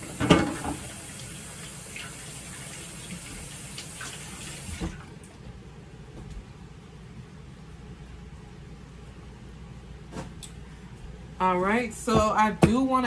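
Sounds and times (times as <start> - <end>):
faucet water running: 0.0 - 5.1.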